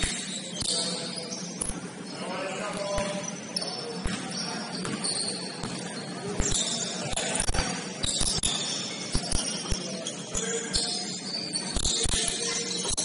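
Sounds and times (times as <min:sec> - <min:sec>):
sneakers squeaking: 0:00.0 - 0:13.0
basketball bouncing on gym floor: 0:02.7 - 0:03.4, 0:04.0 - 0:06.7.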